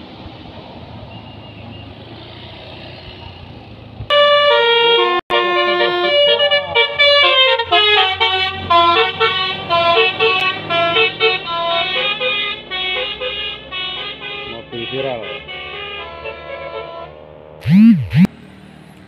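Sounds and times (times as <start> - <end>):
musical vehicle horn tune: 4.1 - 18.3.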